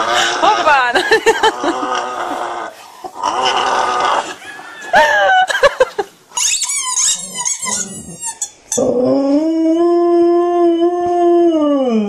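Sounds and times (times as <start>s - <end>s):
high wavering squeaks: 6.4s - 8.9s.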